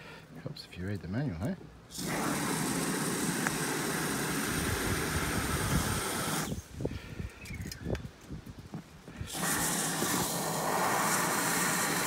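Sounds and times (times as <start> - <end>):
aerosol foam spraying hiss: 1.9 - 6.8, 9.2 - 12.0.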